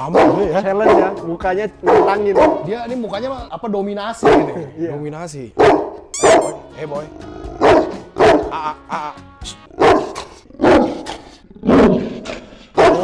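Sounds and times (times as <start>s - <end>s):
dog barking angrily: 0.0s - 1.2s, 1.8s - 2.7s, 4.2s - 4.7s, 5.6s - 6.6s, 7.4s - 8.6s, 9.7s - 13.0s.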